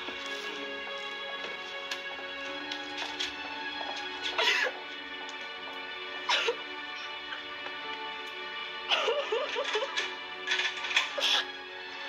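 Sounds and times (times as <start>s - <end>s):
sad background music: 0.0s - 12.0s
girl sobbing: 6.3s - 6.7s, 8.9s - 9.9s.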